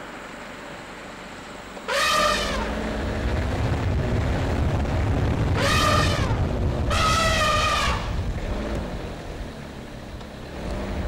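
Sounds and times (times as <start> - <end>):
engine rumbling: 0.0 - 11.0
vehicle horn blasts: 1.9 - 2.8, 5.5 - 8.2.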